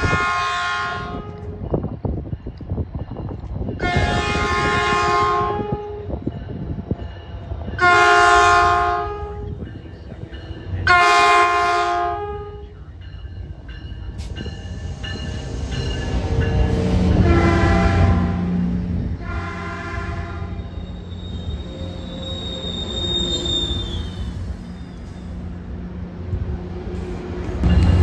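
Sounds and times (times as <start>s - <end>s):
train horn blasts: 0.0s - 1.6s, 3.8s - 6.2s, 7.8s - 9.6s, 10.8s - 12.7s, 16.2s - 21.4s
train rumble: 0.0s - 28.0s.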